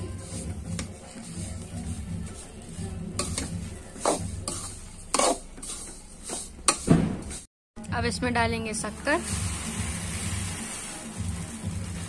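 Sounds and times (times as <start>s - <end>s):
spatula scraping a steel pan: 0.0s - 7.5s.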